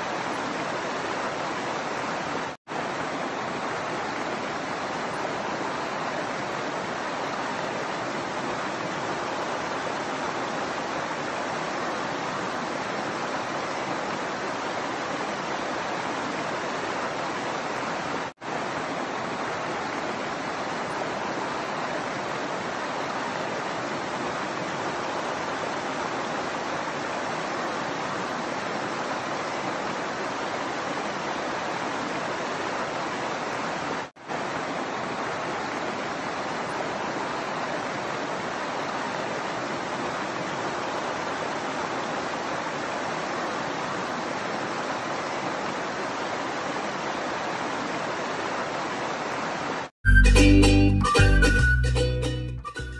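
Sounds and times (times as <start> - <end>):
stream flowing over stones: 0.0 - 49.9.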